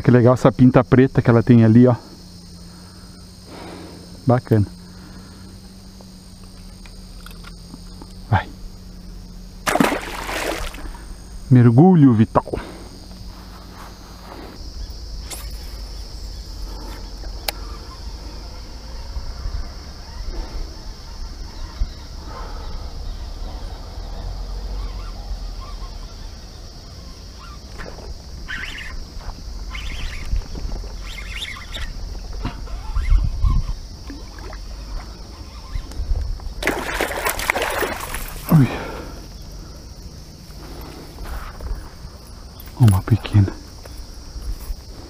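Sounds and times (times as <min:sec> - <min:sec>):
high insect trill: 0:00.0 - 0:45.0
rustling in tall grass: 0:12.9 - 0:16.0
wind rumble: 0:29.0 - 0:38.4.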